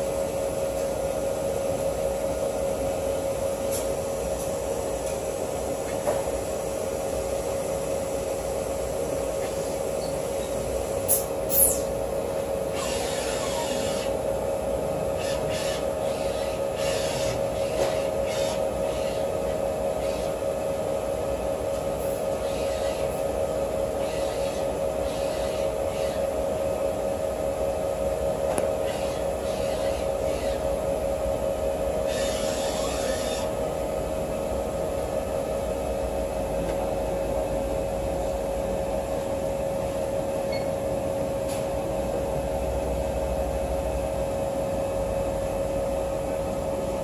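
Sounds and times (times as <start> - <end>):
machine hum with droning tone: 0.0 - 47.0
machine hissing: 9.6 - 12.0, 12.7 - 14.2, 15.2 - 19.4, 32.0 - 33.5
short high squeaks: 11.1 - 11.9.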